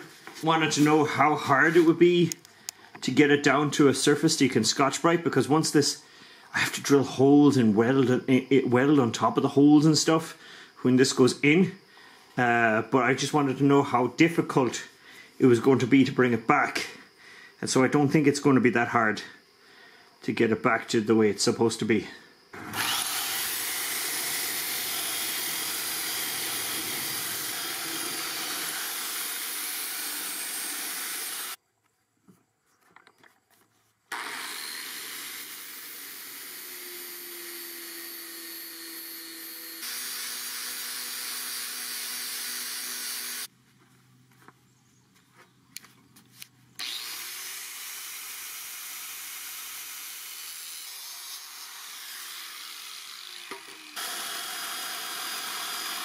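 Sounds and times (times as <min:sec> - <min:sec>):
angle grinder grinding steel: 0:22.6 - 0:31.6, 0:34.1 - 0:43.5, 0:46.8 - 0:56.0
belt sander: 0:22.6 - 0:31.6, 0:34.1 - 0:43.5, 0:46.8 - 0:56.0.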